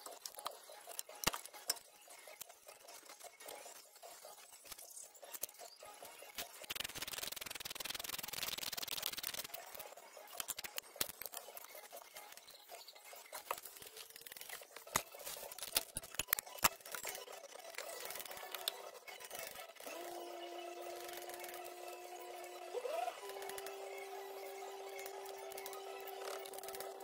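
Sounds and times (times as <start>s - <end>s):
rapid scraping clicks: 6.4s - 12.3s.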